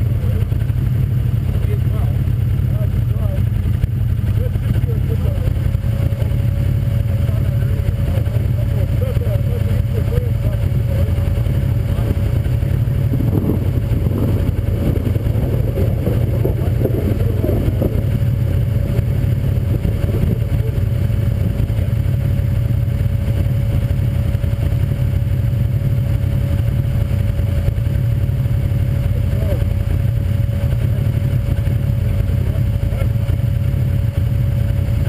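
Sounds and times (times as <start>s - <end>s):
engine idling: 0.0s - 35.0s.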